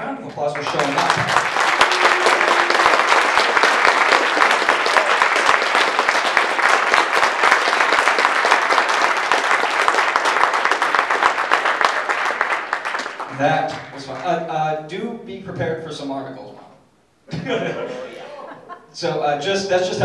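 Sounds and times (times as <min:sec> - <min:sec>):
audience applauding: 0:00.3 - 0:14.3.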